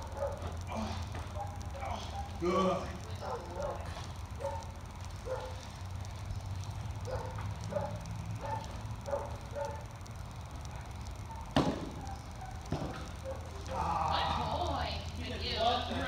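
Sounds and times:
dog barking: 0.0s - 0.5s, 1.3s - 5.7s, 7.0s - 9.9s, 11.3s - 13.6s.

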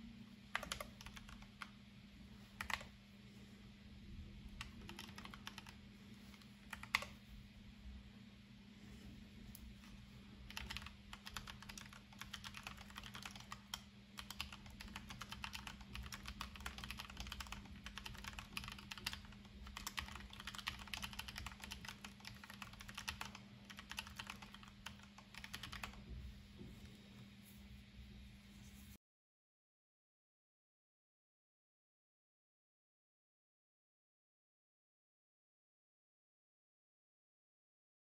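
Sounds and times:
mechanical keyboard typing: 0.5s - 1.7s, 2.6s - 2.9s, 4.6s - 5.8s, 6.7s - 7.1s, 10.5s - 26.0s.

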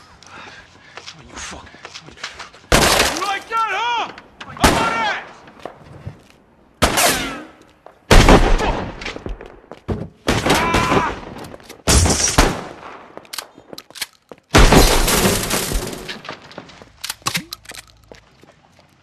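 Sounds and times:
gunshots: 2.7s - 3.3s, 6.8s - 7.5s, 8.1s - 9.3s, 10.3s - 13.1s.

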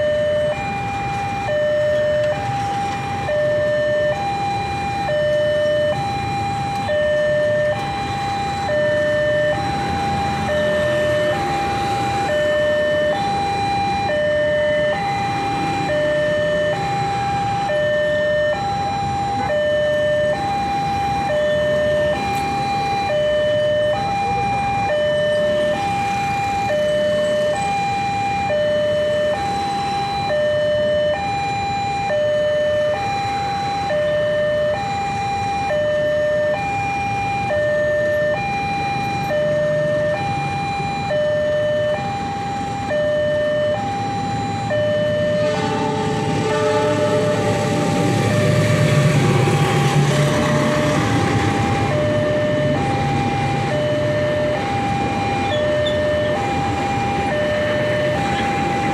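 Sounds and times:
level crossing alarm two tones: 0.0s - 49.1s, 50.1s - 58.9s
passenger train rumbling past: 45.0s - 58.9s.

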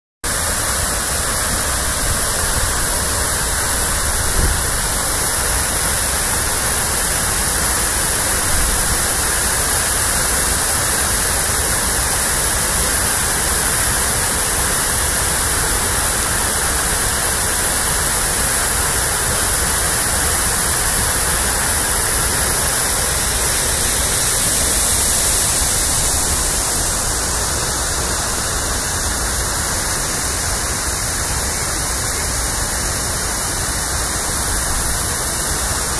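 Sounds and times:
fountain water splashing: 0.3s - 35.9s.

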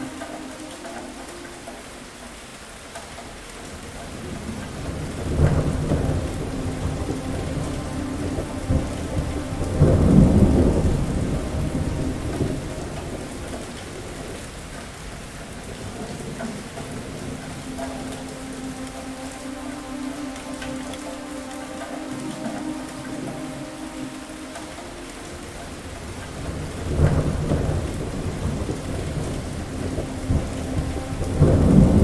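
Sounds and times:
steady rain: 0.0s - 32.0s
thunder rolling: 4.2s - 14.6s, 25.6s - 32.0s.

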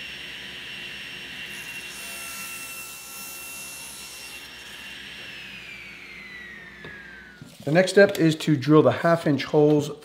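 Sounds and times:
table saw blade whine: 0.0s - 7.6s.

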